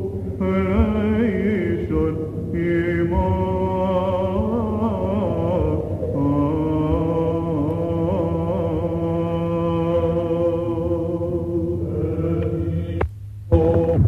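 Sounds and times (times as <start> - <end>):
man chanting slowly: 0.0 - 14.0
steady low drone: 0.0 - 14.0.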